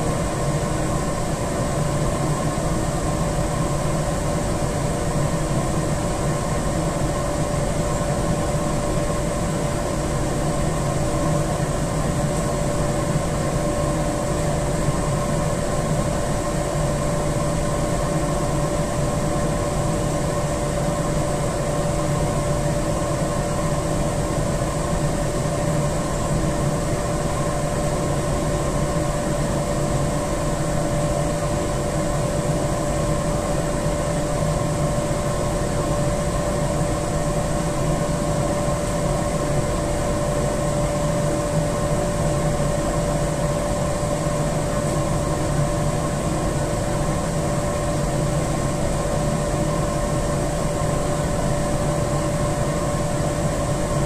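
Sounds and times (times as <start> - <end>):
boiler room machinery humming: 0.0 - 54.0.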